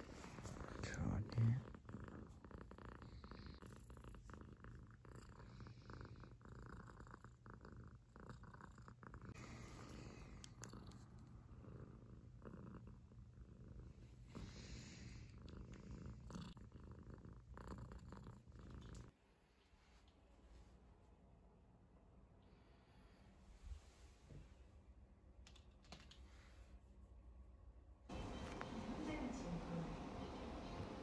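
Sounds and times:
cat purring: 0:00.0 - 0:19.2.

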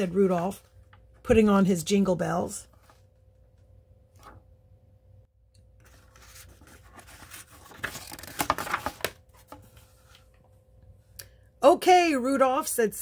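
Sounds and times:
paper crackles: 0:05.8 - 0:10.3
paper page turning: 0:05.8 - 0:10.3.

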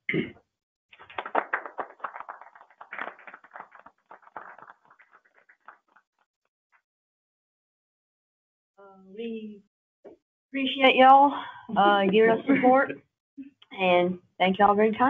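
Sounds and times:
people applauding: 0:01.0 - 0:06.1.

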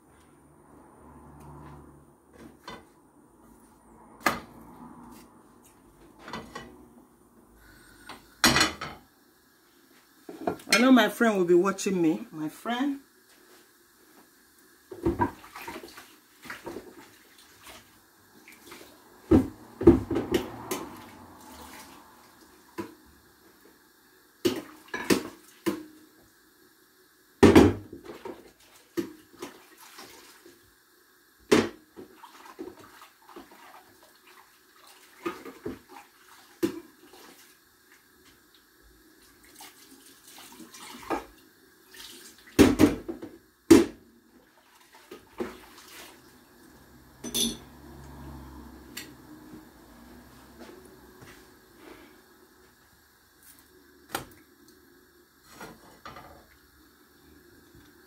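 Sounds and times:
water splashing in sink: 0:14.9 - 0:23.0, 0:27.5 - 0:30.7, 0:31.5 - 0:38.6, 0:39.2 - 0:46.5
dishes and utensils clattering: 0:47.2 - 0:47.7.

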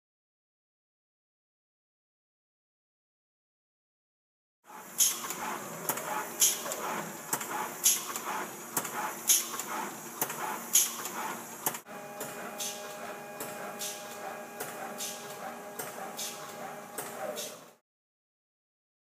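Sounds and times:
machine hissing puffs: 0:04.7 - 0:17.8.

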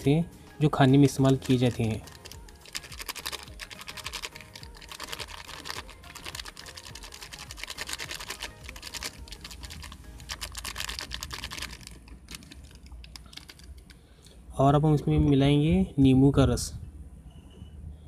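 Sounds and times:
plastic packet crinkling: 0:01.3 - 0:14.0.

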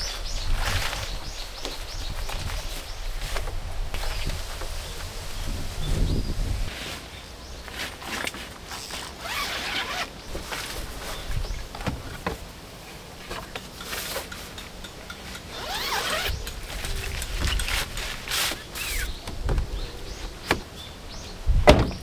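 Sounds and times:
rustling and scraping of objects: 0:00.0 - 0:20.8.

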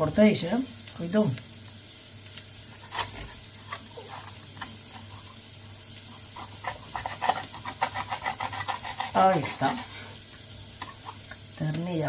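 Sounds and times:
onions sizzling in a pan: 0:00.0 - 0:12.0
knife cutting on cutting board: 0:06.4 - 0:10.0.

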